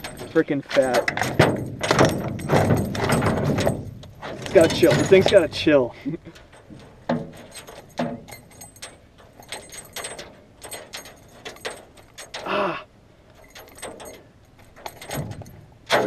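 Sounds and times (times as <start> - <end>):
metal hook clinking and rattling: 0.0 - 12.6, 13.3 - 16.0.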